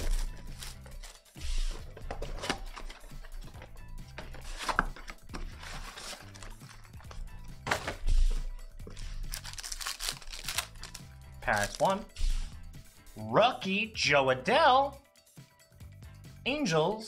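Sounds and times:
cards being handled: 0.0s - 12.4s
background music: 0.0s - 17.0s
foil wrapper tearing and crinkling: 9.2s - 11.8s.

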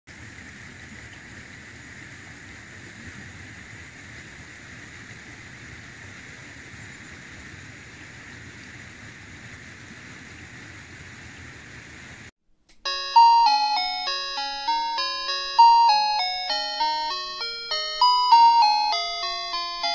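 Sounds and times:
bell-like chime jingle: 12.8s - 19.9s.

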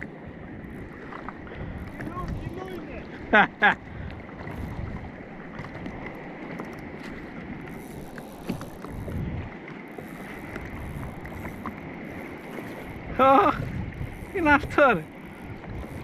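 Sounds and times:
water lapping against kayak hull: 0.0s - 16.0s
wind on microphone: 0.0s - 16.0s.

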